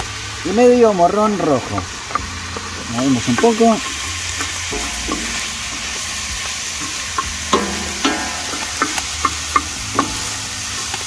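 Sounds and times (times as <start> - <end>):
vegetables sizzling in pan: 0.0 - 11.0.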